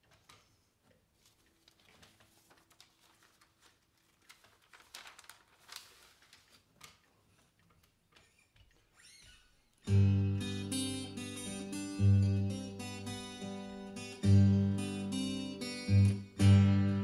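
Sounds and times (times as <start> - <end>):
paper sheets rustling: 0.0 - 8.4.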